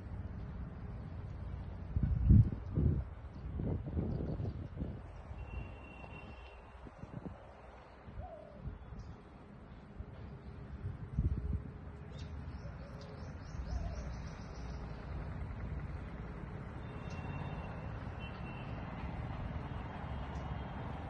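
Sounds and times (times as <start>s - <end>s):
birds calling: 12.0s - 15.2s.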